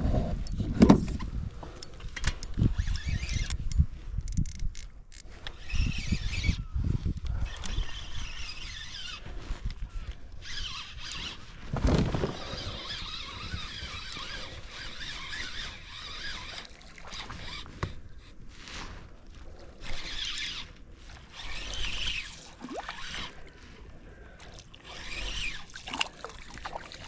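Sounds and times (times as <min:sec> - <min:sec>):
reel winding: 0:01.8 - 0:06.6, 0:07.2 - 0:11.5, 0:12.3 - 0:18.4, 0:19.7 - 0:23.6, 0:24.8 - 0:26.6
fishing reel drag buzzing: 0:02.4 - 0:11.6, 0:12.2 - 0:18.5, 0:19.6 - 0:23.6, 0:24.8 - 0:26.7.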